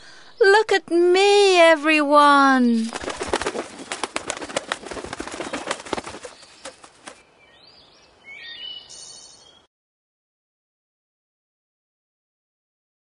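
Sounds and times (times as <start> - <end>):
swan wings flapping: 2.8 - 7.2
faint bird chirps: 5.2 - 9.7.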